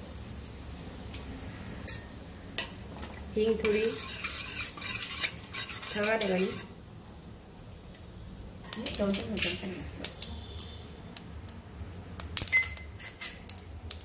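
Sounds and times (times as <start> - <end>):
seeds crackling in hot oil: 0.0 - 14.0
metal spatula scraping pan: 3.4 - 6.7, 8.9 - 9.8, 13.0 - 13.4.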